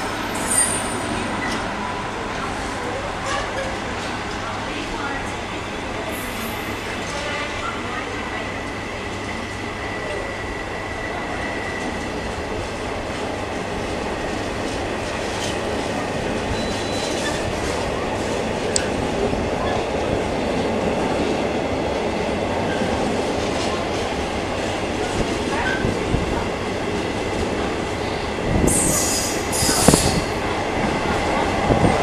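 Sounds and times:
freight train wheels on rails: 0.0s - 32.0s
faint high wheel squeal: 16.6s - 17.4s.

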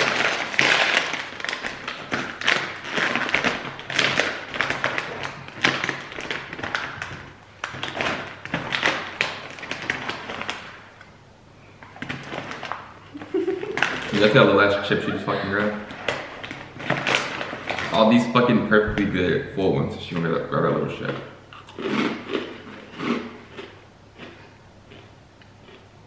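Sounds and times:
plastic bag crinkling: 0.0s - 11.1s, 11.8s - 19.1s.

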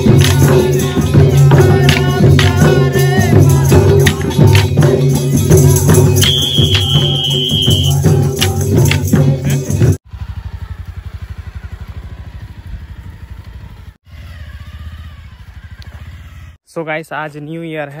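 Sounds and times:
barrel drums beating: 0.0s - 10.0s.

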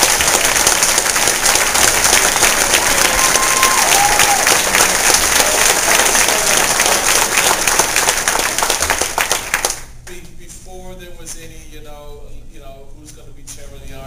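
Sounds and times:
crowd applauding: 0.0s - 9.9s
person whooping: 2.9s - 5.7s.

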